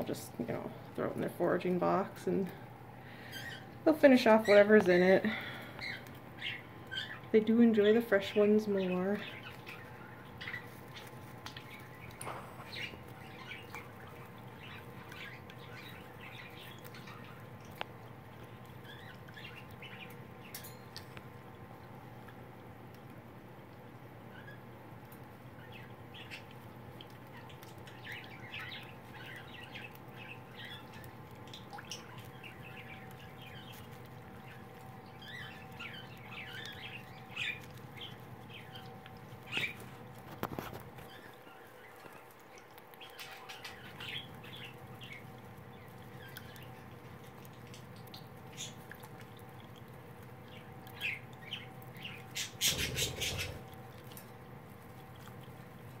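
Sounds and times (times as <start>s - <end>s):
bird chirps: 51.0s - 53.6s.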